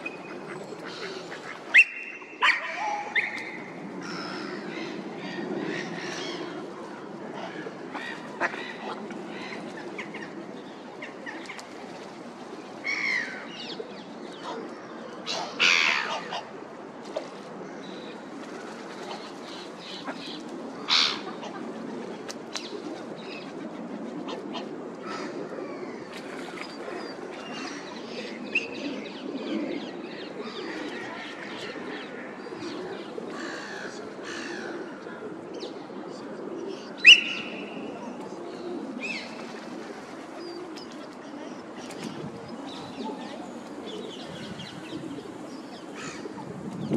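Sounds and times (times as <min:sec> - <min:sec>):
water birds calling and chirping: 0:00.0 - 0:23.6, 0:24.3 - 0:35.8, 0:36.6 - 0:46.9
low background noise: 0:00.0 - 0:46.9.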